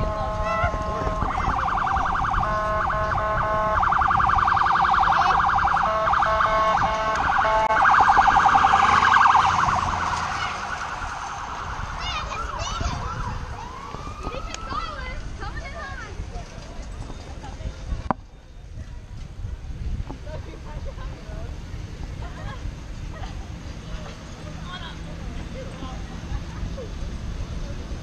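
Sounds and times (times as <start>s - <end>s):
electronic siren cycling patterns: 0.0s - 14.8s
wind rumble on microphone: 0.0s - 24.2s, 25.0s - 28.0s.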